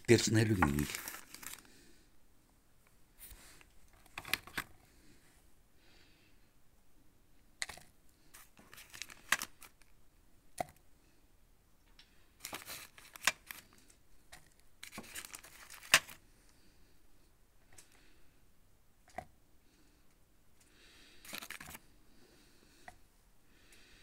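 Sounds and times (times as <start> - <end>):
plastic containers rustling and scraping: 0.0 - 1.7, 3.2 - 4.8, 7.7 - 9.8, 12.4 - 16.2, 21.2 - 21.9.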